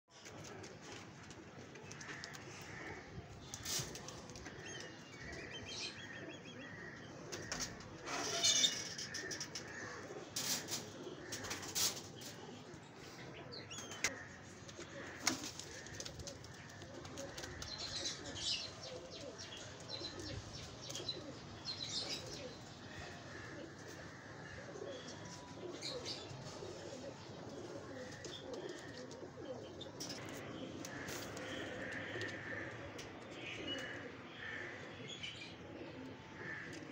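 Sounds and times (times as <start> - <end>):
pigeons cooing: 0.2 - 36.9.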